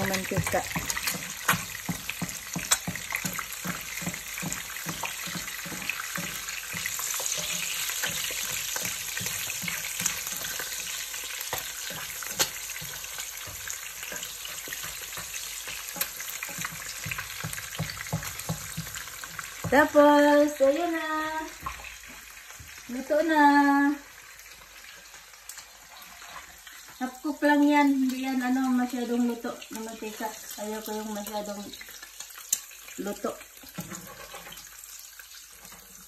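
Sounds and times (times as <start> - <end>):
spatula strokes in pan: 0.0 - 19.5, 33.6 - 34.8
eggs sizzling in oil: 0.0 - 36.0.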